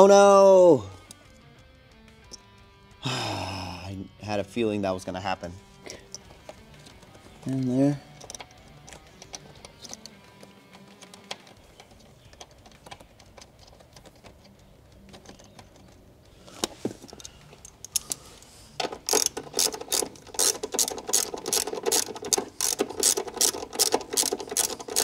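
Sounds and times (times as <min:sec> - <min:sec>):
faint handling noise: 0:05.8 - 0:25.0
ratchet clicking: 0:08.1 - 0:13.8, 0:18.8 - 0:25.0.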